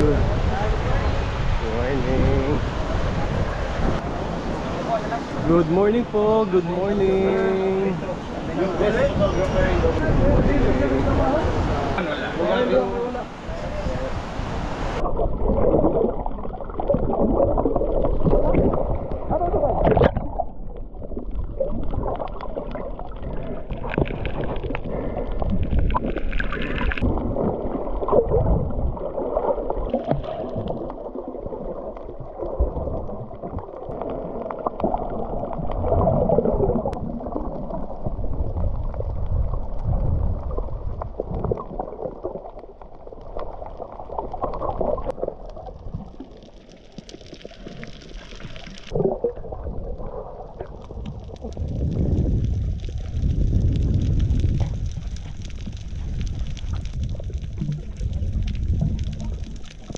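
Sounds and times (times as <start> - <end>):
underwater gurgling: 0.0 - 59.9.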